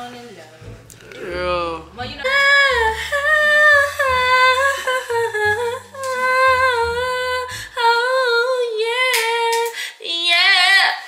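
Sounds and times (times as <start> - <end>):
low bass line: 0.6 - 8.3.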